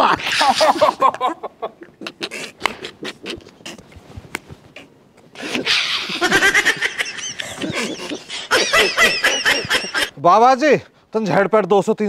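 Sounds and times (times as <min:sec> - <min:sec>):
men laughing heartily: 0:00.0 - 0:03.6, 0:05.4 - 0:10.2.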